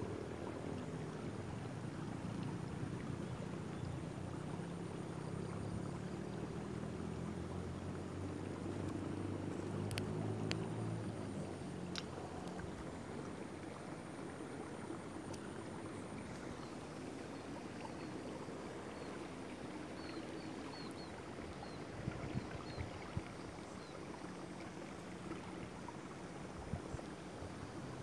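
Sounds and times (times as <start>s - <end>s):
faint ticks: 8.7s - 10.9s, 11.8s - 12.9s, 15.2s - 15.6s.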